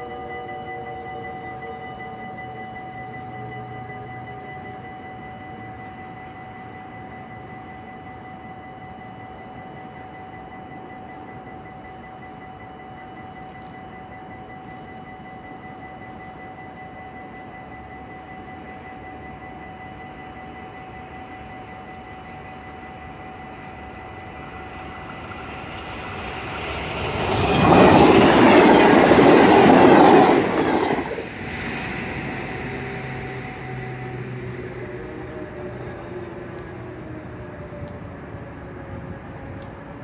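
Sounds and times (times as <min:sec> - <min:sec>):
level crossing warning bell: 0:00.0 - 0:37.6
low hum: 0:21.6 - 0:39.2
steady rushing noise: 0:23.9 - 0:37.0.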